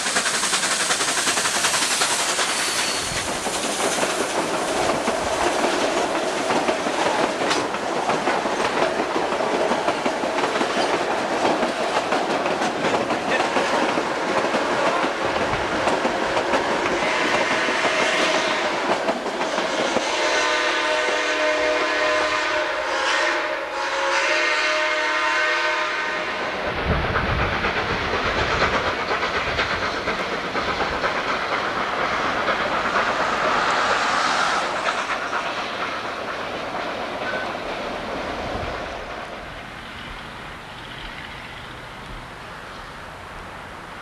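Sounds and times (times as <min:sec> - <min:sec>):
train rushing and rumbling: 0:00.0 - 0:44.0
steam locomotive chime whistle: 0:01.8 - 0:03.2, 0:17.0 - 0:18.8, 0:19.9 - 0:26.6.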